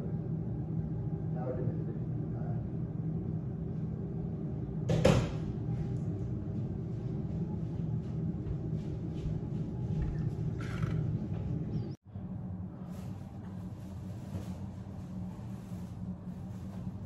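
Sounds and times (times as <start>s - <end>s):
steady low hum: 0.0s - 17.0s
soft footsteps on hard floor: 6.6s - 10.4s.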